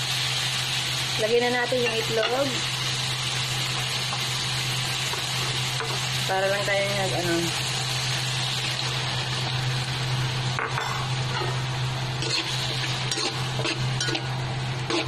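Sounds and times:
egg sizzling in a wok: 0.0s - 15.0s
spatula scraping pan: 12.2s - 15.0s.

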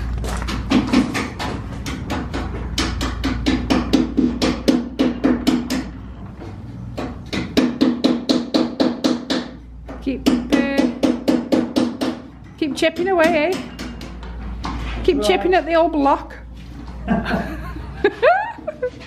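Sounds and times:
hammer tapping on wood: 0.4s - 5.9s, 6.9s - 14.8s.

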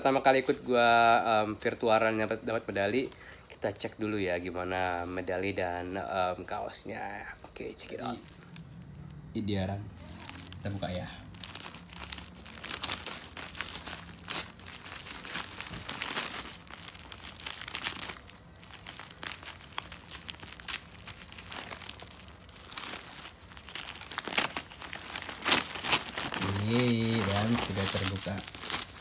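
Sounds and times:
paper envelope tearing and crumpling: 10.0s - 29.0s.

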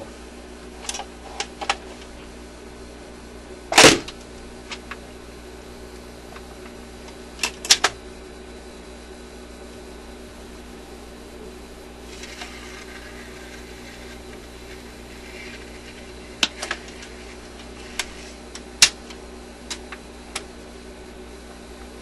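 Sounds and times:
record changer motor humming: 0.0s - 22.0s
record dropping thump: 3.7s - 4.2s.

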